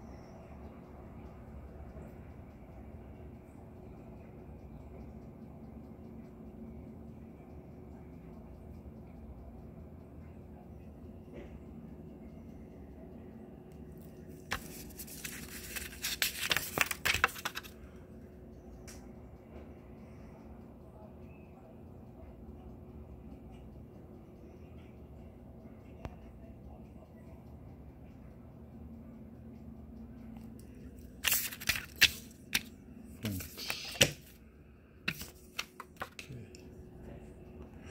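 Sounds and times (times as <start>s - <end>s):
paper booklet rustling: 14.3s - 17.8s, 31.2s - 34.4s, 35.1s - 36.3s
clicks and taps on packaging: 14.5s - 17.8s, 35.1s - 36.3s.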